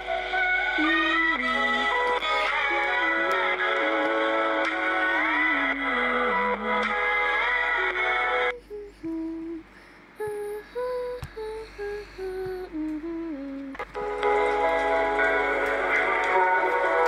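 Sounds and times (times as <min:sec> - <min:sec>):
background music: 0:00.0 - 0:08.5, 0:13.9 - 0:17.0.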